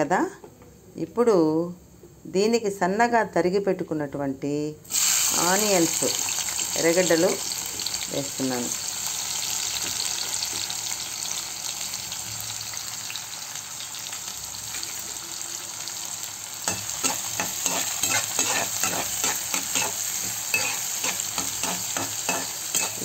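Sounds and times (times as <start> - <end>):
onions sizzling in hot oil: 4.8 - 23.0
spatula stirring and scraping: 16.6 - 23.0.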